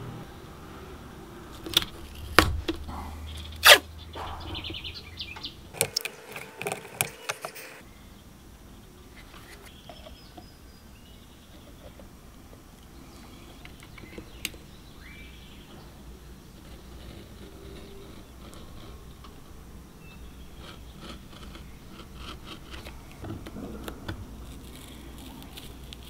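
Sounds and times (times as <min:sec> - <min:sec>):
tape crackling under rubbing: 0:03.5 - 0:03.8, 0:05.7 - 0:07.8, 0:16.4 - 0:19.5, 0:20.4 - 0:26.0.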